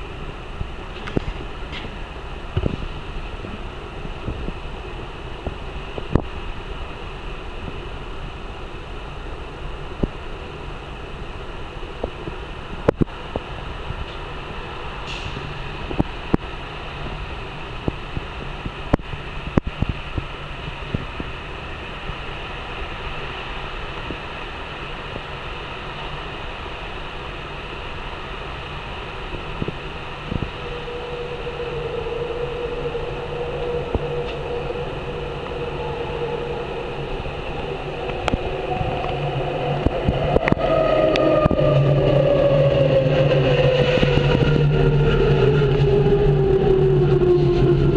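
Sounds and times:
train motor whine: 29.0s - 47.9s
higher falling whine: 29.1s - 47.9s.

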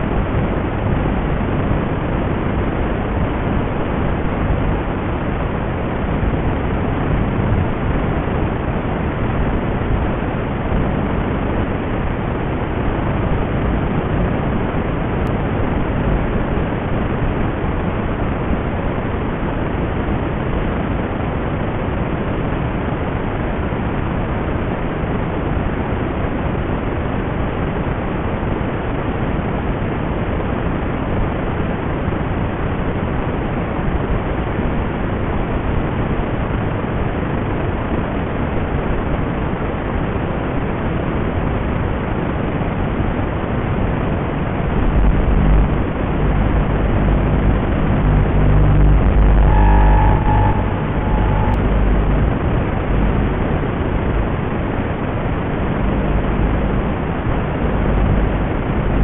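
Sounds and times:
static hiss: 0.0s - 59.0s
low rumble: 42.9s - 59.0s
steady high tone: 43.8s - 59.0s.

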